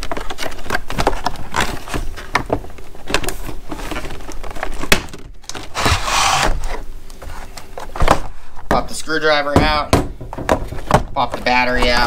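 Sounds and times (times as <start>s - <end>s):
plastic rubbing rasp: 5.5s - 7.5s.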